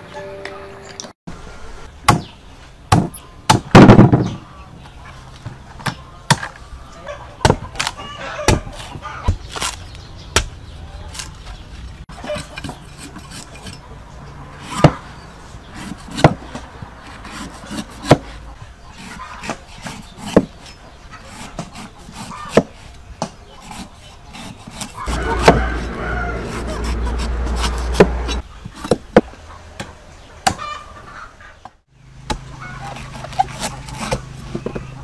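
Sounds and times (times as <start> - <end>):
knife chopping onto wood: 2.9 - 4.3, 15.8 - 16.4, 24.4 - 29.3
knife scraping fibrous husk: 12.1 - 13.9, 14.6 - 23.0, 23.6 - 28.9, 32.7 - 34.6.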